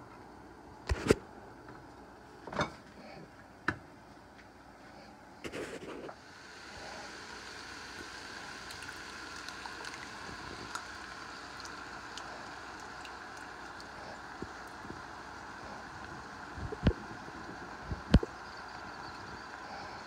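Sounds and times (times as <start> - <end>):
food sizzling in a frying pan: 6.2 - 19.6.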